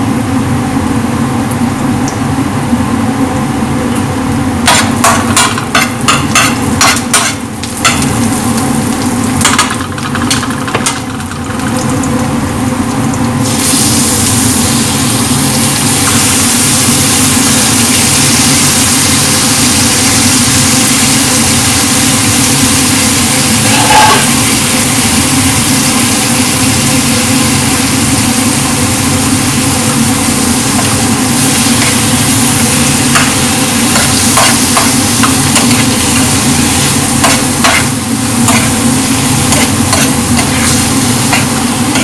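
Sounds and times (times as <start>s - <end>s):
food sizzling in oil: 0.0s - 42.0s
steady low hum: 0.0s - 42.0s.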